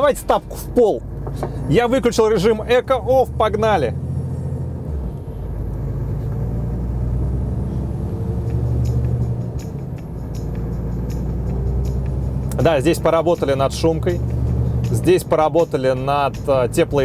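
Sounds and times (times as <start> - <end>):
diesel engine drone: 0.0 - 17.0.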